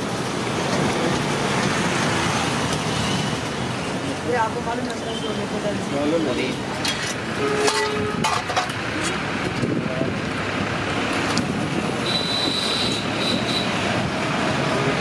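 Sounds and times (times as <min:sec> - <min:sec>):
street traffic noise: 0:00.0 - 0:15.0
metal pots and lids clinking: 0:06.8 - 0:08.8.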